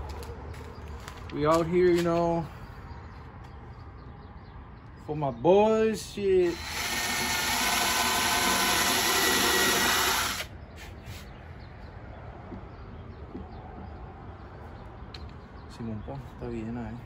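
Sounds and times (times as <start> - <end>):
cordless drill boring into wood: 6.4 - 10.5.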